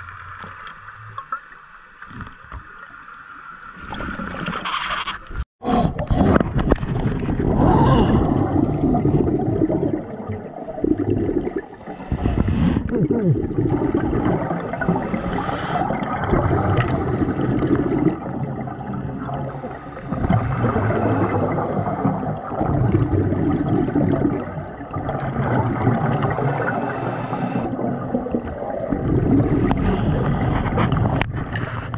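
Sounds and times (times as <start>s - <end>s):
exhaled bubbles gurgling: 5.7s - 31.9s
regulator hiss on inhale: 11.7s - 12.9s, 14.7s - 15.9s, 19.8s - 22.5s, 26.6s - 27.7s.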